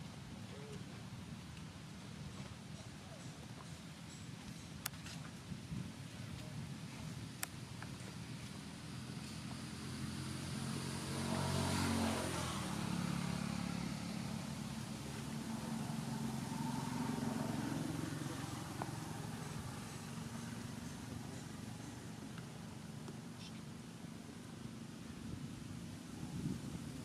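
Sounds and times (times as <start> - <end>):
vehicle engine passing: 9.0 - 23.4.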